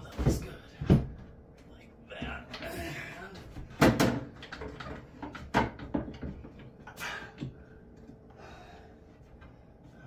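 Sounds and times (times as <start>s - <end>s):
tools knocking on wooden cabinet: 3.6s - 6.6s.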